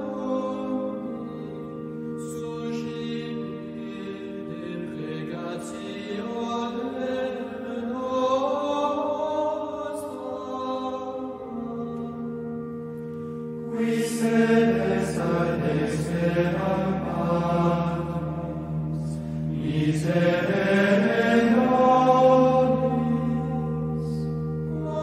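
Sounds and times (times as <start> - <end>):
vocal chant: 0.0 - 12.4, 13.7 - 25.0
steady drone: 10.3 - 25.0.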